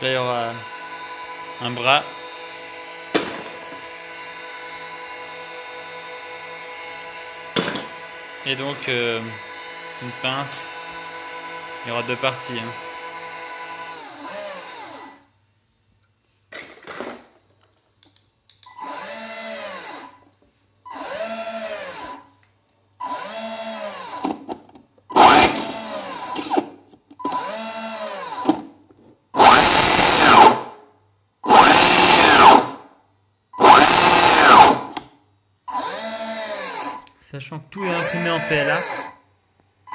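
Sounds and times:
electric motor whining: 25.1s - 26.6s, 29.4s - 30.7s, 31.5s - 32.8s, 33.6s - 35.0s, 35.7s - 37.1s, 37.8s - 39.2s.

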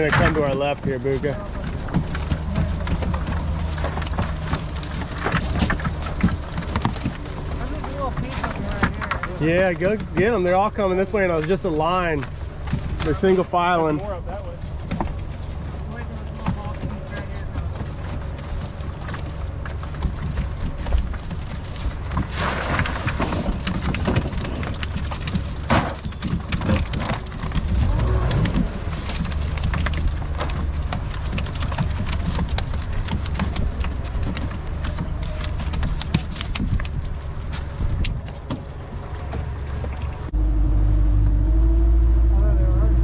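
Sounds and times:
boat motor humming: 0.0s - 22.3s, 23.1s - 43.0s
wind rumble on microphone: 0.0s - 43.0s
water splashes: 22.0s - 23.6s.

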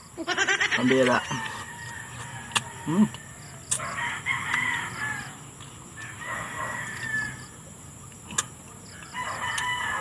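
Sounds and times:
rooster crowing: 0.9s - 5.4s, 6.0s - 7.6s, 9.0s - 10.0s.

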